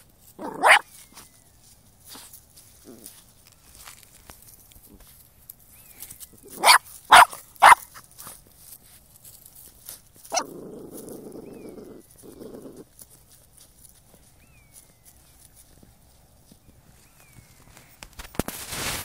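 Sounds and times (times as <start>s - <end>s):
puppy barking: 0.4s - 0.9s, 6.4s - 8.4s, 10.3s - 10.6s.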